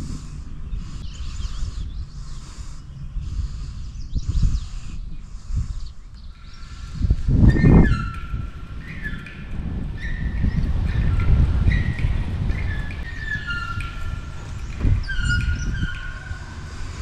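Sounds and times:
wind buffeting microphone: 0.0 - 17.0
high squeaks: 7.0 - 17.0.

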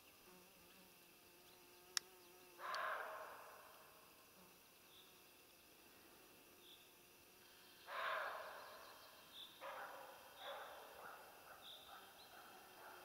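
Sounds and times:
deer alarm barks: 2.6 - 3.5, 7.9 - 8.6, 9.6 - 13.0.

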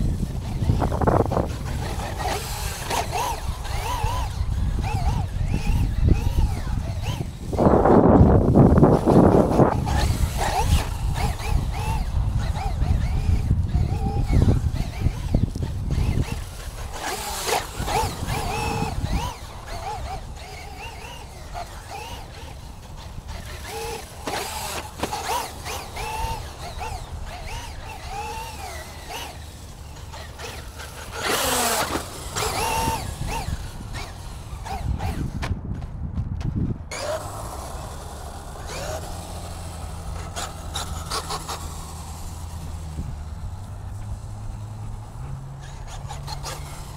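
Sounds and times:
electric motor whining: 0.0 - 46.9
tyre and dirt noise: 0.0 - 46.9.

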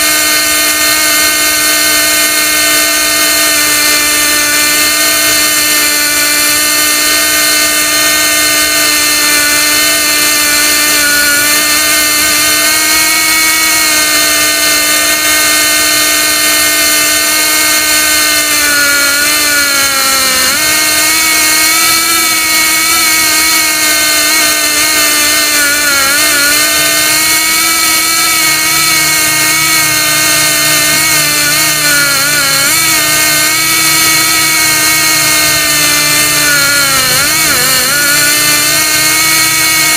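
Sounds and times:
pneumatic winch whine: 0.0 - 39.9.

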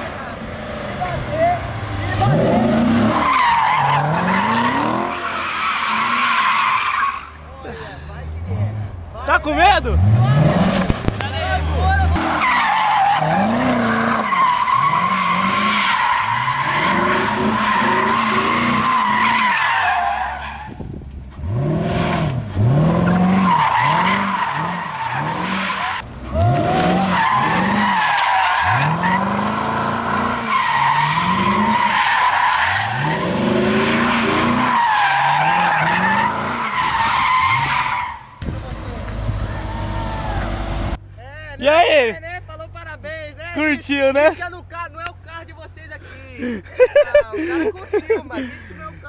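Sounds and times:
car engine revving: 0.0 - 7.5, 8.3 - 41.0
tyres squealing: 1.0 - 8.7, 9.4 - 20.8, 22.0 - 38.4.

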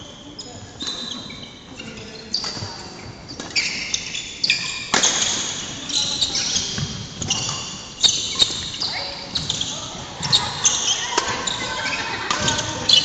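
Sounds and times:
sneakers squeaking on wooden floor: 0.0 - 13.0
racket hitting shuttlecock: 4.9 - 5.7, 11.0 - 13.0.

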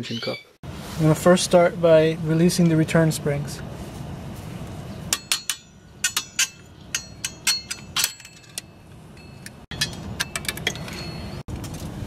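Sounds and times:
metal tools clinking on springs: 5.1 - 11.4.

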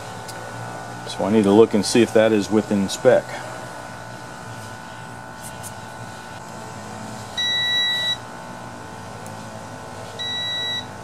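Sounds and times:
multimeter continuity beep: 7.4 - 8.3, 10.2 - 11.0.

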